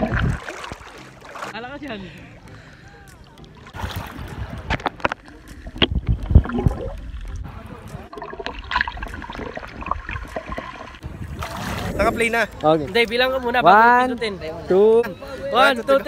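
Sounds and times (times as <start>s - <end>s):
muffled underwater bubbling: 0.0s - 0.9s, 2.4s - 12.0s
water thumps against microphone: 0.0s - 1.5s
water splashing and gurgling: 0.0s - 12.6s.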